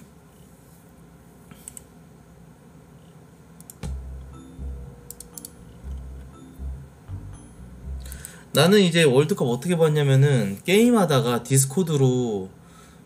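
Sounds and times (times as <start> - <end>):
soft low thuds: 3.8 - 5.1.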